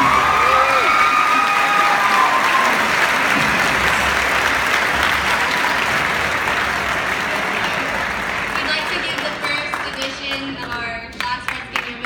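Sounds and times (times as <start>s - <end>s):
cheers and whoops: 0.0s - 3.0s
audience applauding: 0.0s - 12.0s.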